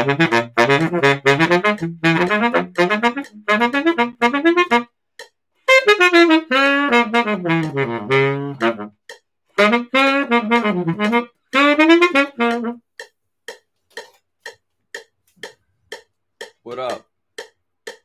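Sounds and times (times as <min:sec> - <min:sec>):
baritone saxophone playing: 0:00.0 - 0:05.0, 0:05.6 - 0:12.9
metronome clicking: 0:00.0 - 0:18.0.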